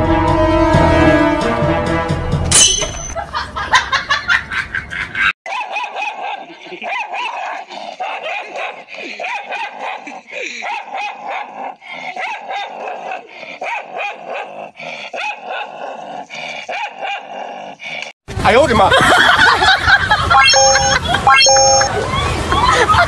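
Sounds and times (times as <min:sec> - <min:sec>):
dog barking and yipping: 0:05.5 - 0:17.6.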